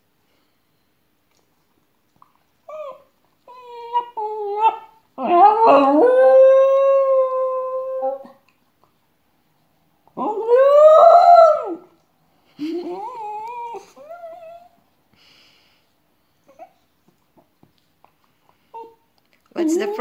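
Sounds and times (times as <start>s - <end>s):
dog whining: 2.7s - 6.1s, 10.2s - 11.9s, 12.6s - 14.8s, 16.4s - 16.9s
small dog howling: 3.8s - 8.3s, 10.2s - 11.9s.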